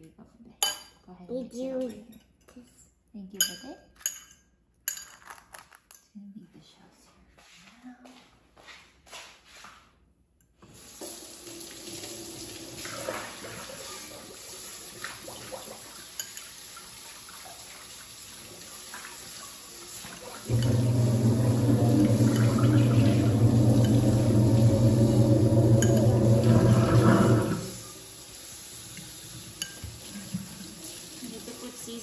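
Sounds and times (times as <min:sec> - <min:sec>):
fork clinking against ceramic bowl: 0:03.4 - 0:05.3
tap running into sink: 0:20.0 - 0:27.9.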